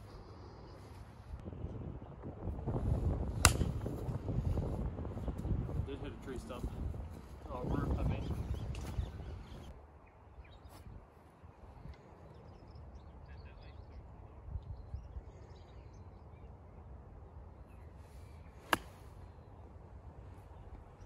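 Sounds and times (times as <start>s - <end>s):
golf club striking ball: 3.4s - 3.9s, 18.7s - 19.0s.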